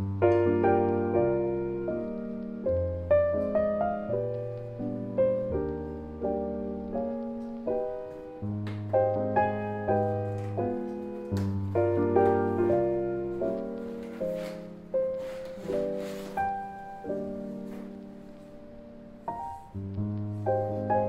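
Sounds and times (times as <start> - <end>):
soft solo piano: 0.0 - 21.0.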